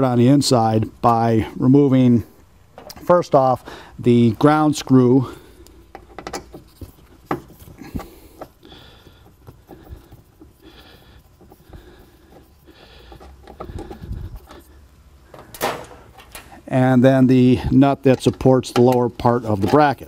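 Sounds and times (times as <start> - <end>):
trunk liner rustling: 5.8 - 16.3.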